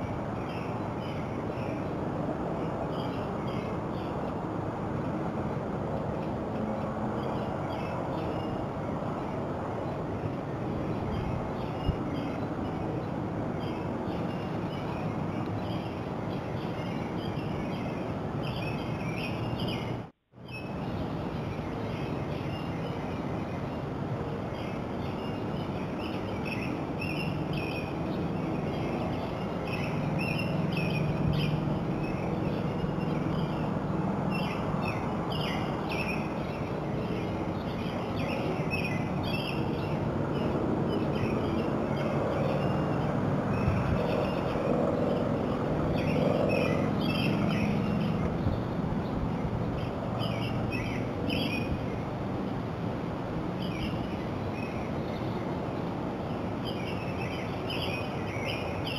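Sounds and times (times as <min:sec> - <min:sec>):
small birds chirping: 0:10.8 - 0:52.1, 0:56.5 - 0:58.9.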